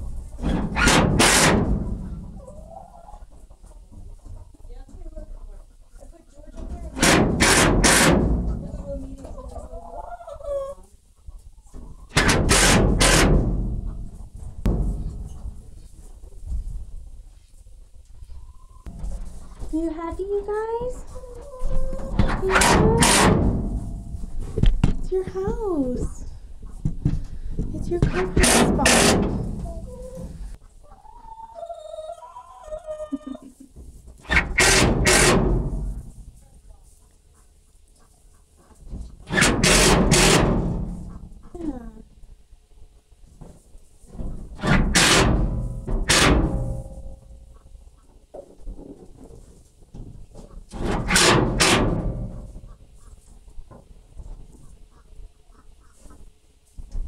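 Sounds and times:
hens calling and clucking: 0.0 - 57.0
hen calling: 28.7 - 33.4.

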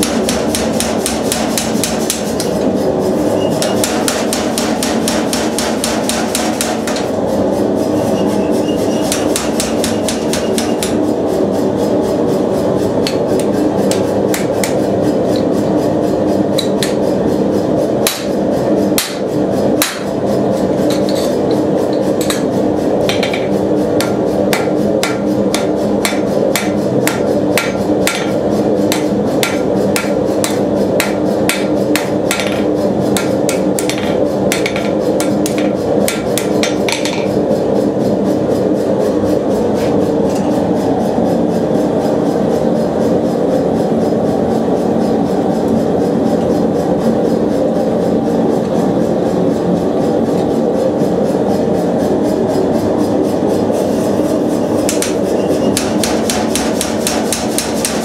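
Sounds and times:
power hammer striking steel: 0.0 - 2.3, 3.5 - 7.1, 9.0 - 11.0, 18.0 - 18.4, 19.0 - 20.1, 23.1 - 37.3, 54.8 - 58.0
steady mechanical hum: 0.0 - 58.0.

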